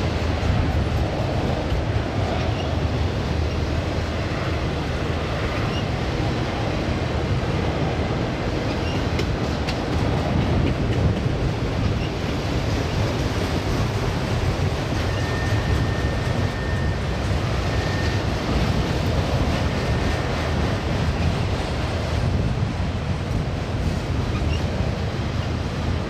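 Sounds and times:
freight cars rolling on rails: 0.0 - 26.0.

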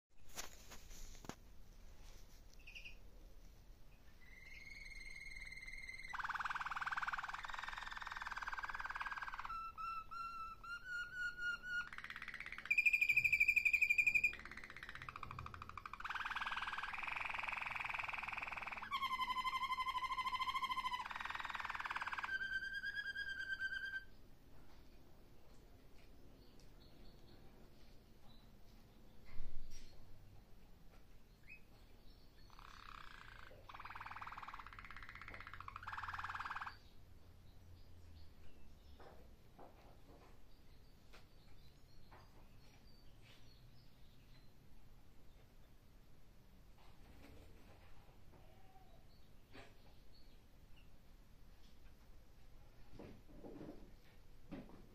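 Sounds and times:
canary singing rolling trills: 2.5 - 3.1, 3.8 - 24.3, 31.3 - 39.2.

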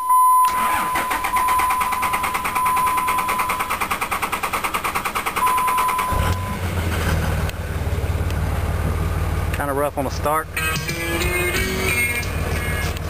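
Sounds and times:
starter motor cranking diesel engine: 0.5 - 8.4
diesel engine running: 0.5 - 13.0.

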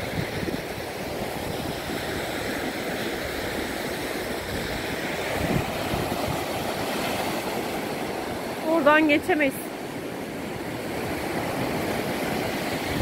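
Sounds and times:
waves breaking on beach: 0.0 - 13.0
wind rumbling on microphone: 0.0 - 13.0.

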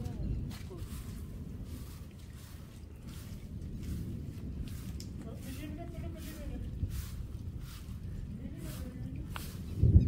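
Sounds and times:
low rumble: 0.0 - 10.0
hand broom swishing: 0.7 - 9.8.

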